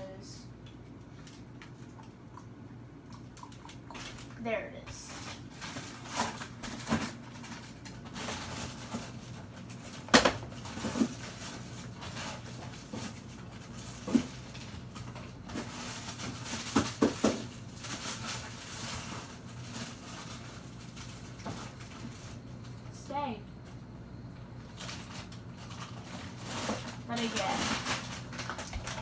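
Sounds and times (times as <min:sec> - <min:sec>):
faint steady hum: 0:00.0 - 0:29.0
kitchen items knocking and clattering: 0:03.4 - 0:20.4, 0:25.7 - 0:29.0.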